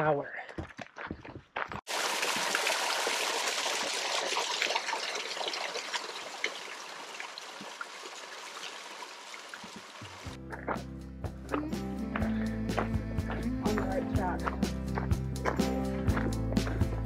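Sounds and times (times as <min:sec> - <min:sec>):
waterfall splashing into pool: 0:01.9 - 0:10.4.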